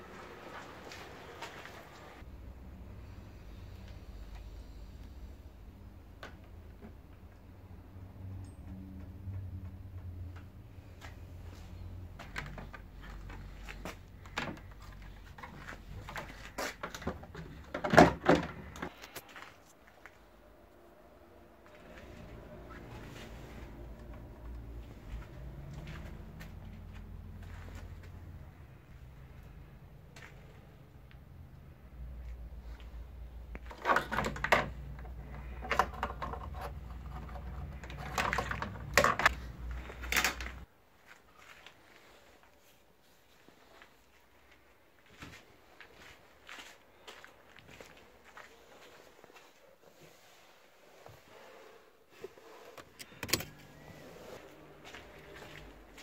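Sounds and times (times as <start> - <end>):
plastic tubing and bottle rattling: 33.6 - 40.6.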